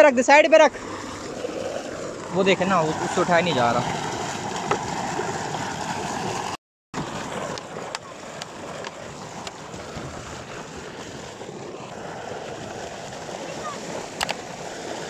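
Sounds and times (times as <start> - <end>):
water gushing from pipe: 0.5 - 15.0.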